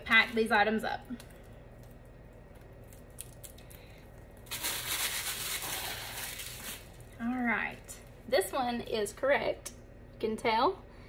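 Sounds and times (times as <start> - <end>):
plastic packaging crinkling: 1.2 - 7.3.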